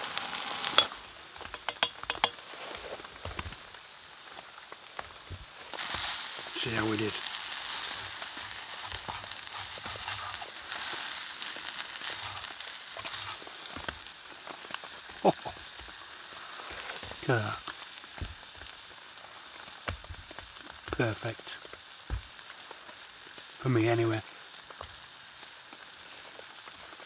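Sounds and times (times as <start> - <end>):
steak sizzling in a frying pan: 0.0 - 27.0
knife clicking against pan: 1.5 - 2.4.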